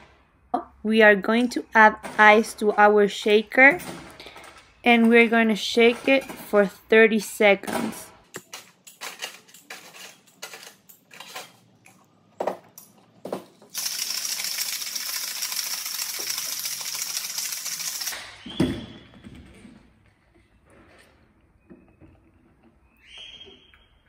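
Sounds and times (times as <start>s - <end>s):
ice cubes clinking into shaker: 13.7s - 18.2s
ice rattling in shaken shaker: 13.7s - 18.2s.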